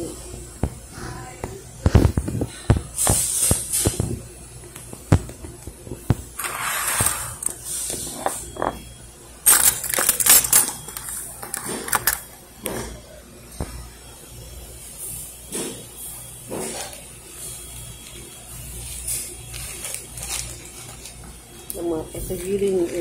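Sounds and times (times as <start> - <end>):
keys jingling: 9.5 - 12.3.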